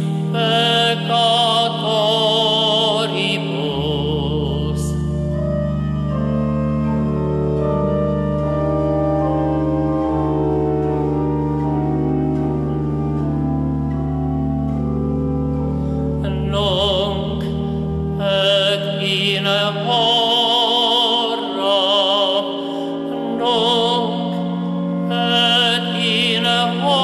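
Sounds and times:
man singing with vibrato: 0.0s - 5.3s, 16.2s - 27.0s
church organ chords: 0.0s - 27.0s.

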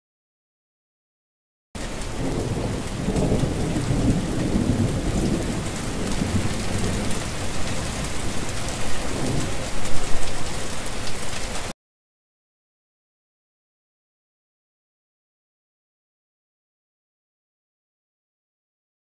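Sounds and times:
thunder rumbling: 1.8s - 11.3s
heavy rain falling: 1.8s - 11.8s.

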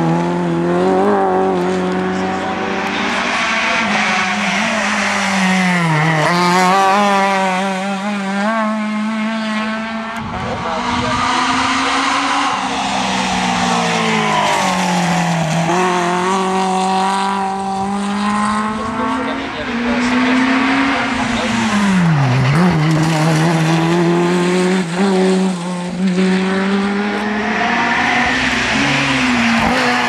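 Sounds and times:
rally car engines revving: 0.0s - 30.0s.

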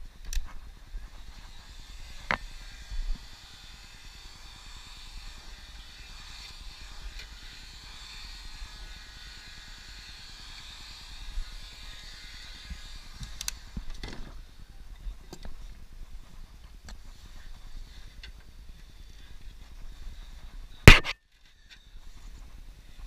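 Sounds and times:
sharp knock: 20.9s - 21.2s.

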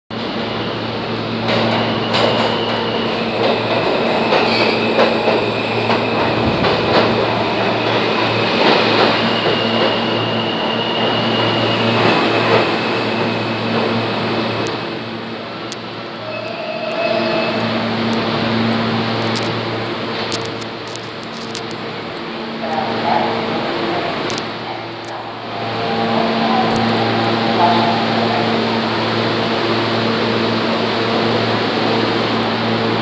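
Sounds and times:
subway train rumbling: 0.1s - 33.0s
high train squeal: 0.3s - 15.2s, 16.1s - 19.2s, 24.8s - 32.0s.

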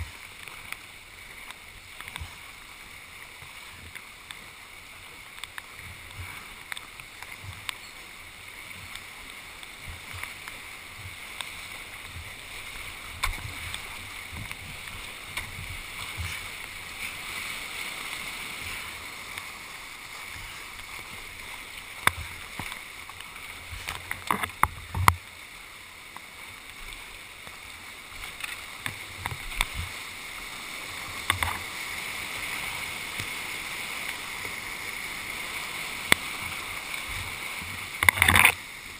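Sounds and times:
whitewater rapids rushing: 0.0s - 38.9s
sharp knocks and splashes: 8.6s - 25.3s, 28.2s - 30.0s, 31.1s - 31.8s, 36.0s - 38.6s.

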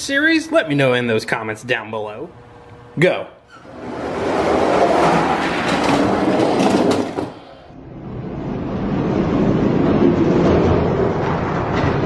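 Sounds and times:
toy trucks rattling down track: 4.8s - 7.4s.

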